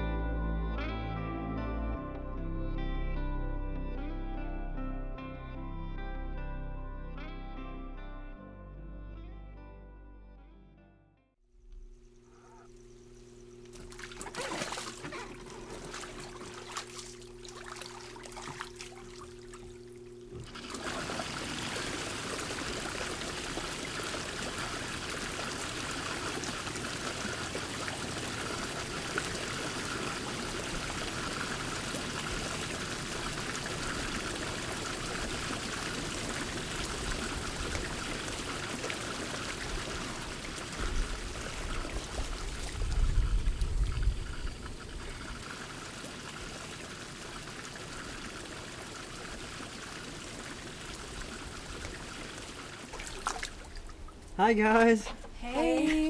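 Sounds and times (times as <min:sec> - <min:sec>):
low steady hum: 0:11.5 - 0:56.0
hot tub water churning and bubbling: 0:13.6 - 0:54.8
water splashes: 0:13.7 - 0:54.8.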